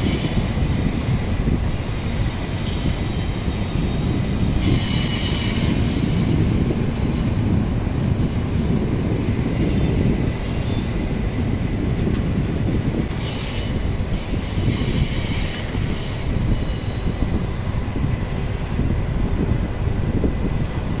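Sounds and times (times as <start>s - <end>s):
train wheels rumbling on track: 0.0s - 21.0s
high-pitched metallic squeal: 4.6s - 8.8s, 13.2s - 17.6s, 18.2s - 18.9s.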